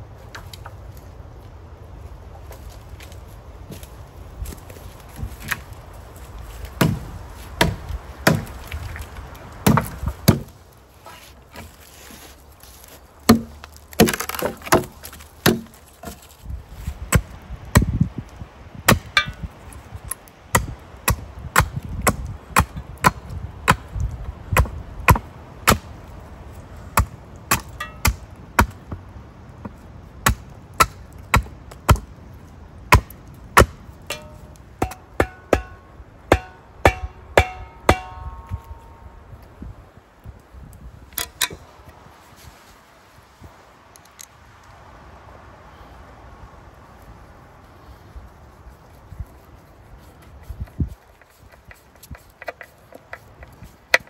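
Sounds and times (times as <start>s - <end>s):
hatchet chopping wood: 6.8s - 8.6s, 9.6s - 10.5s, 13.3s - 16.2s, 17.1s - 18.0s, 18.9s - 19.5s, 20.5s - 25.9s, 27.0s - 29.0s, 29.7s - 32.1s, 32.9s - 38.8s.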